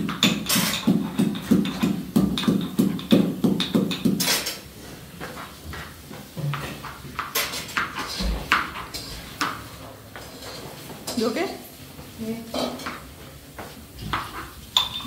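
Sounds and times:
utensils clinking and clattering: 0.0s - 4.7s, 6.4s - 11.4s, 14.0s - 15.0s
rhythmic knocking in a kitchen: 0.0s - 15.0s.

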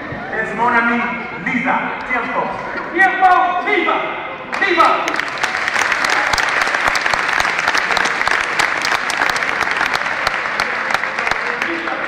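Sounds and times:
crowd applauding: 4.5s - 12.0s.

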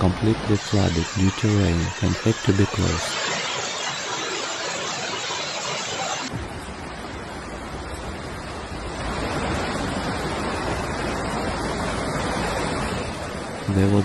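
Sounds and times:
floodwater rushing: 0.0s - 14.0s.

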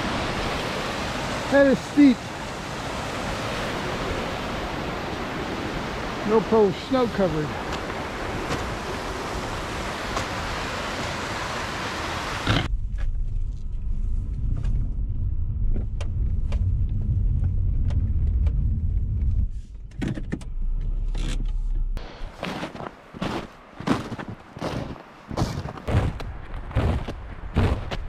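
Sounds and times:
steady rushing noise: 0.0s - 19.7s
footsteps crunching in snow: 7.5s - 11.1s, 22.2s - 28.0s
low rumble: 12.6s - 22.4s.

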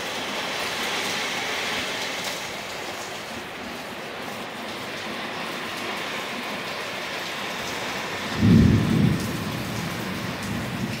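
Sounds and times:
steady rain: 0.0s - 11.0s
low thunder rumble: 8.3s - 11.0s.

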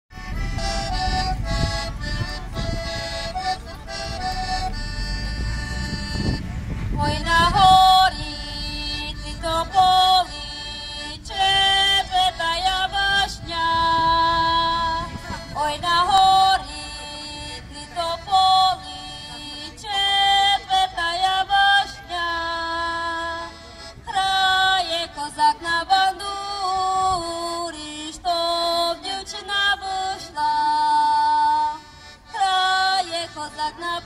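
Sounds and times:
accordion over loudspeakers: 0.1s - 34.0s.

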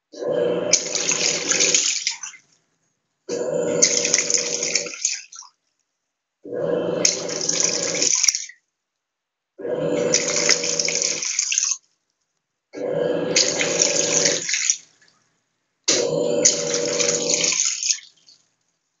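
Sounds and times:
washing machine agitating: 0.0s - 2.4s, 3.3s - 5.5s, 6.5s - 8.5s, 9.6s - 11.8s, 12.8s - 15.2s, 15.9s - 18.4s.

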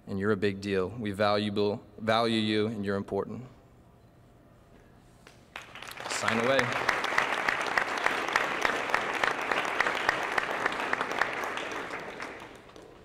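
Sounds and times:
crowd applauding: 5.5s - 13.0s.

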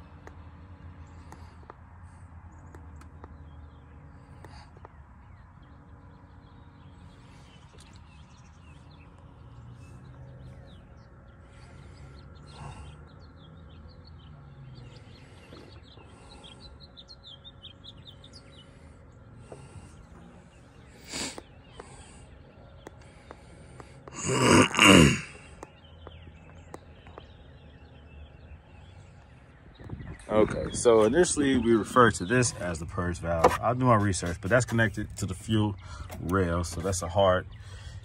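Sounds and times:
birds chirping: 0.0s - 38.0s.

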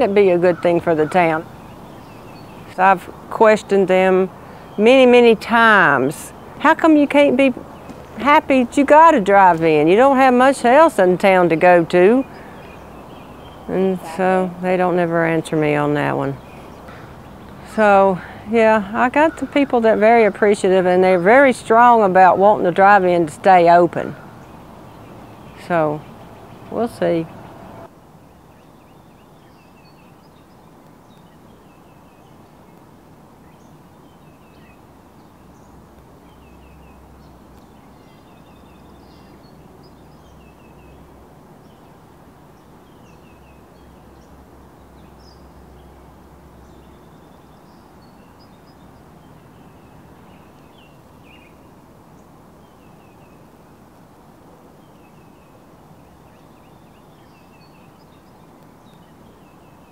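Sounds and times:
birds chirping and singing: 0.0s - 27.9s
steady background hiss: 0.0s - 59.9s.

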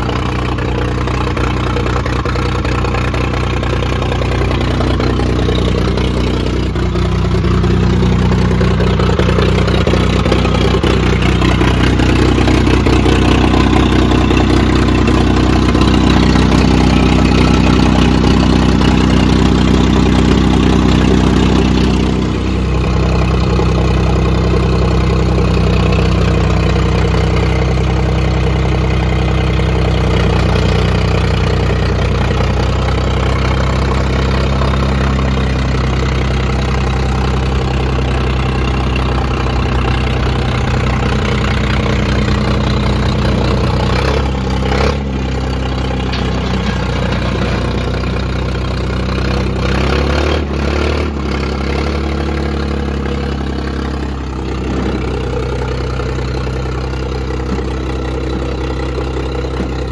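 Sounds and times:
backhoe engine running: 0.0s - 59.9s.

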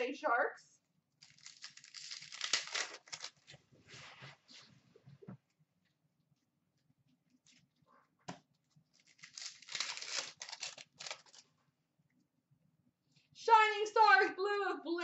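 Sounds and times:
trading cards rustling and scraping: 1.2s - 4.6s, 8.9s - 11.5s.

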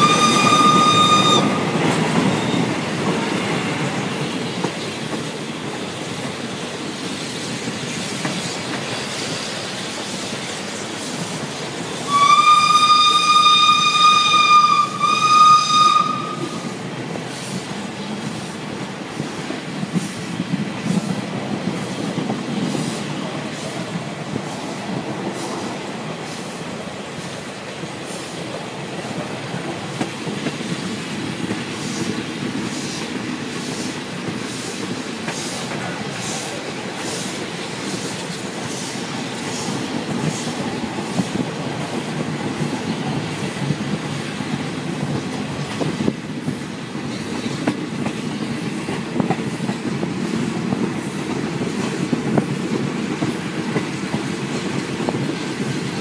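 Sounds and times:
steam locomotive whistle: 0.0s - 2.8s, 12.0s - 16.8s
train running: 0.0s - 56.0s.

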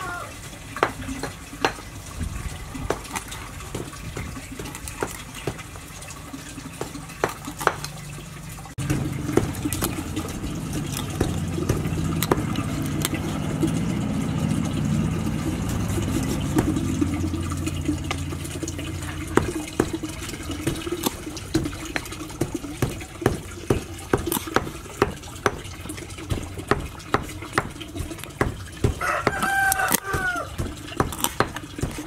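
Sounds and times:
cleaver chopping on wooden board: 0.8s - 1.8s, 2.9s - 5.6s, 6.8s - 7.9s, 8.8s - 10.1s, 10.8s - 13.2s, 20.6s - 32.0s.

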